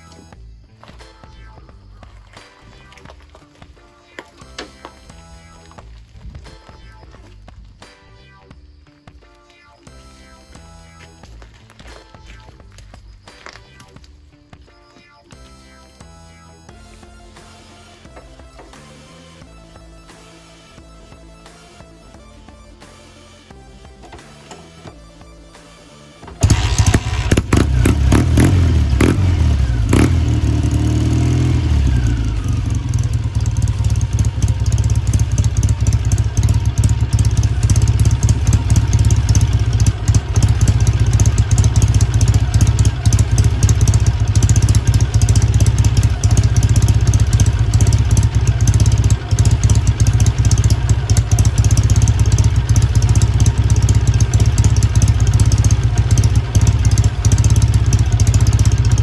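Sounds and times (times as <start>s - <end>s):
engine sharp cracks: 26.2s - 59.0s
motorcycle engine revving: 26.2s - 59.0s.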